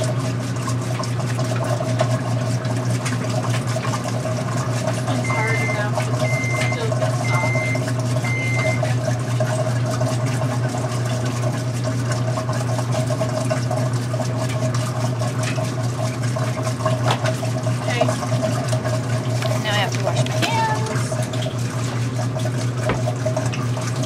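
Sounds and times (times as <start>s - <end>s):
washing machine water rushing: 0.0s - 24.0s
short electronic beeps: 5.2s - 8.9s.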